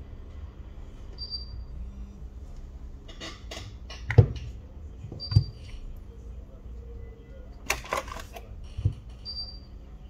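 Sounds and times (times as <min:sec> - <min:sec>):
light scraping of phone parts: 0:07.7 - 0:09.3.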